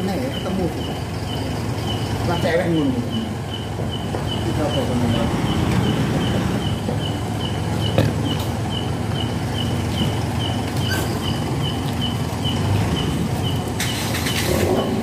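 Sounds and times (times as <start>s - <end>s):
motorcycle engine rumble: 0.0s - 15.0s.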